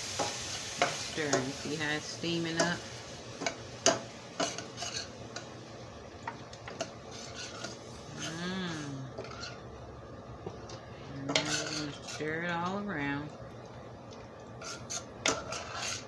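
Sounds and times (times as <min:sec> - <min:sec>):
pan sizzling faintly: 0:00.0 - 0:16.0
metal spoon scraping skillet: 0:03.4 - 0:05.5, 0:06.7 - 0:09.7, 0:11.2 - 0:12.5, 0:14.6 - 0:16.0.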